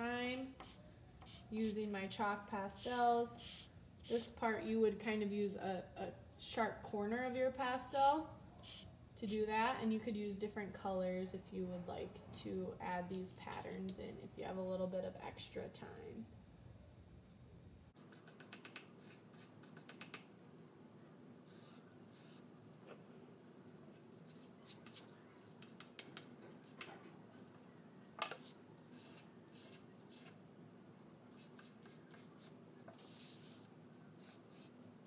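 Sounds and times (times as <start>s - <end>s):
chalk pastel scratching on paper: 18.0s - 20.1s, 21.5s - 22.5s, 23.8s - 26.8s, 28.3s - 30.4s, 31.3s - 35.0s.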